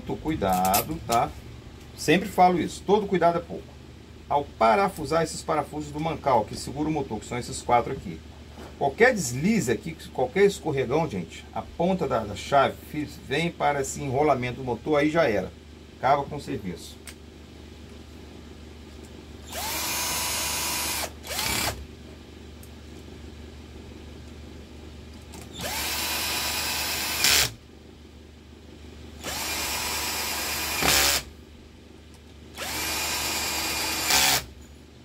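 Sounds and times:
cordless drill whining: 0:19.4 - 0:21.8, 0:25.5 - 0:27.5, 0:29.2 - 0:31.3, 0:32.6 - 0:34.5.

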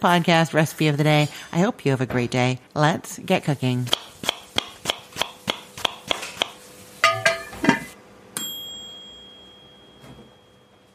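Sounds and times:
bright ringing ding: 0:07.0 - 0:07.6, 0:08.4 - 0:10.9.

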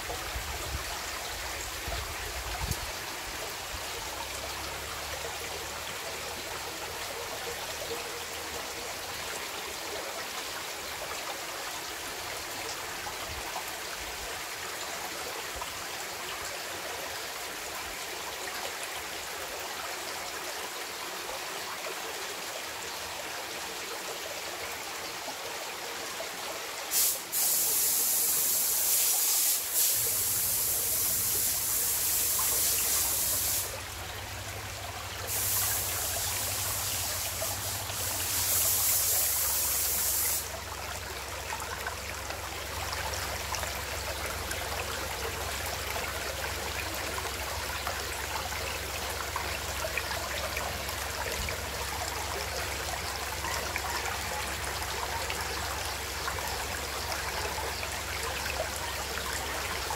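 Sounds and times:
stream water over rocks: 0:00.0 - 0:59.9.

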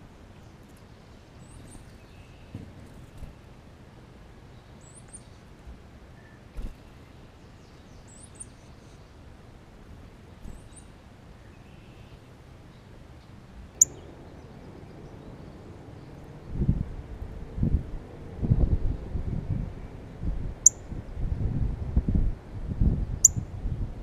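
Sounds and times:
songbird chirps: 0:00.0 - 0:09.3, 0:10.1 - 0:16.7.

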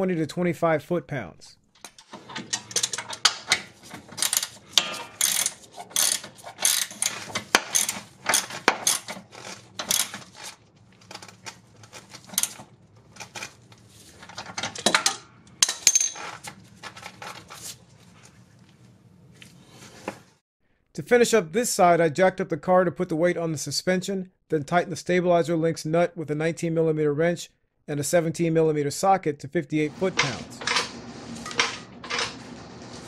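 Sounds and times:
metal tools clinking: 0:01.8 - 0:10.6, 0:14.2 - 0:17.0
ratchet clicks: 0:04.2 - 0:10.5.

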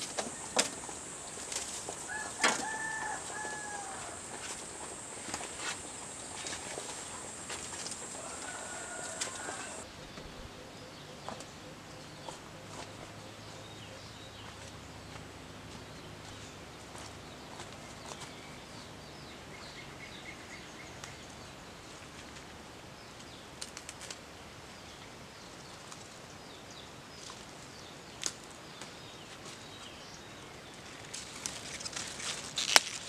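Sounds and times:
small birds chirping: 0:00.0 - 0:22.4
leaves snapping when picked: 0:06.4 - 0:09.8, 0:23.6 - 0:24.2, 0:31.2 - 0:33.0.

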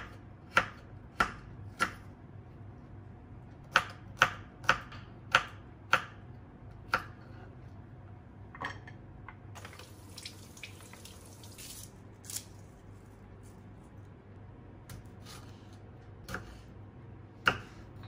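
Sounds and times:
knife chopping on wooden board: 0:00.0 - 0:02.1, 0:03.7 - 0:06.2, 0:16.2 - 0:16.6, 0:17.4 - 0:18.0.

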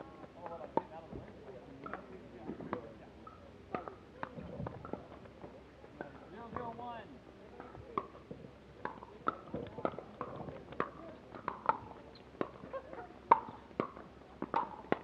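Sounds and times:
ball bouncing on court: 0:13.3 - 0:15.0
paddles hitting plastic ball: 0:13.3 - 0:15.0.

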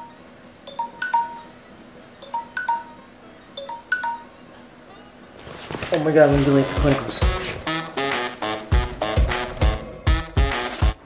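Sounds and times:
smartphone alarm chime: 0:00.7 - 0:01.6, 0:02.2 - 0:03.0, 0:03.6 - 0:04.4.

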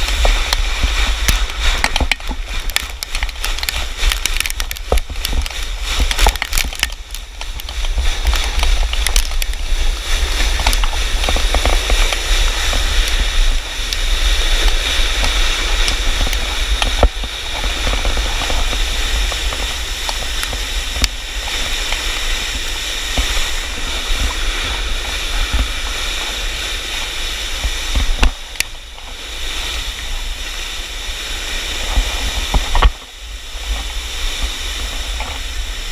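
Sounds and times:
stones ticking: 0:00.0 - 0:24.7
wind buffeting microphone: 0:00.0 - 0:35.9.

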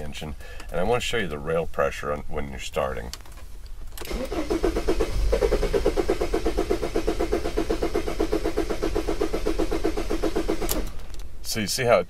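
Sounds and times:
diesel engine cranking: 0:03.9 - 0:11.2.

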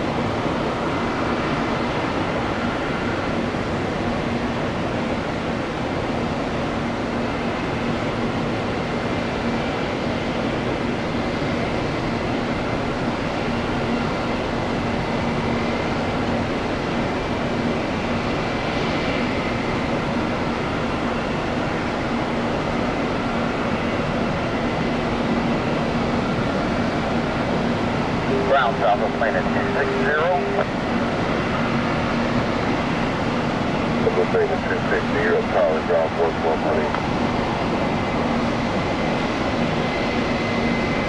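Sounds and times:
jet engines at takeoff: 0:00.0 - 0:41.0.

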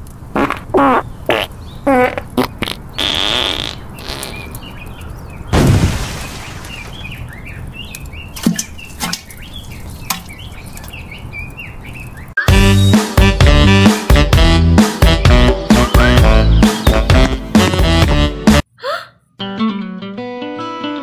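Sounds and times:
birds chirping: 0:00.7 - 0:13.0, 0:13.8 - 0:18.0
loud boom: 0:05.5 - 0:06.7.

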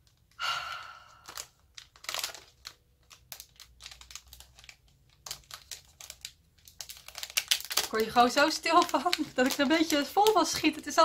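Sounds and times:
wrapping crinkling and rustling: 0:00.0 - 0:11.0.

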